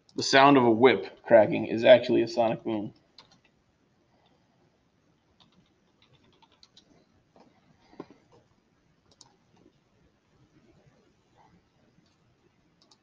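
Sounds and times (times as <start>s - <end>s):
typing on a computer keyboard: 3.2s - 3.5s, 5.4s - 7.0s, 9.1s - 9.7s, 12.8s - 13.0s.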